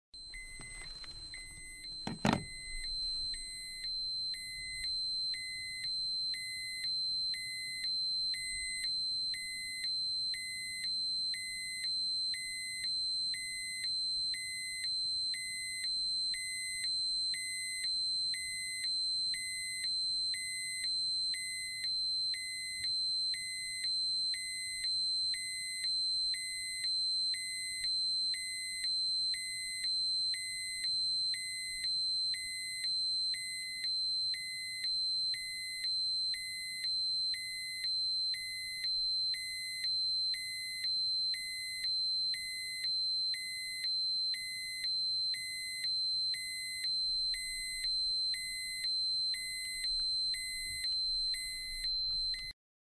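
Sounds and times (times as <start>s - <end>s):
high-pitched alarm tone: 0.2s - 7.8s, 32.5s - 52.6s
repeating alarm beep: 0.2s - 52.6s.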